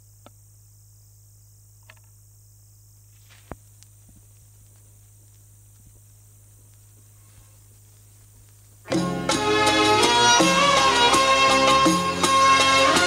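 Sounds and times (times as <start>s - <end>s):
vinyl record hum and hiss: 0.0s - 13.0s
vinyl clicks and pops: 3.2s - 9.0s.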